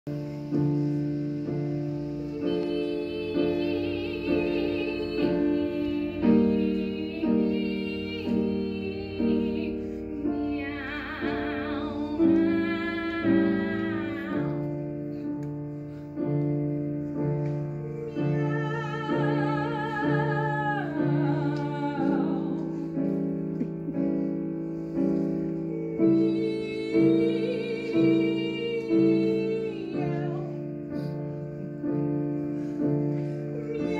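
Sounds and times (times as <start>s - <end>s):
grand piano chords: 0.0s - 33.9s
soprano singing operatic phrases: 2.3s - 14.8s, 17.8s - 22.8s, 25.7s - 30.7s, 33.5s - 33.9s.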